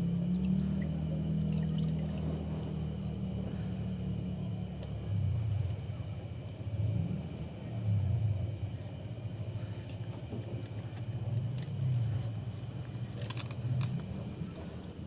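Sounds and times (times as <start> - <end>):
crickets chirring: 0.0 - 15.0.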